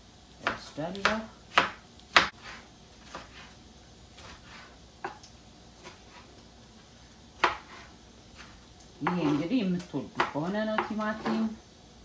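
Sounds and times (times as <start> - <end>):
knife tapping cutting board: 10.2 - 11.5.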